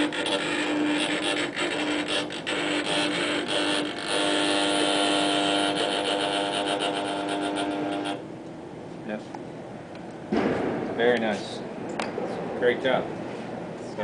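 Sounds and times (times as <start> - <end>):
electric motors whining and clicking: 0.0 - 8.6.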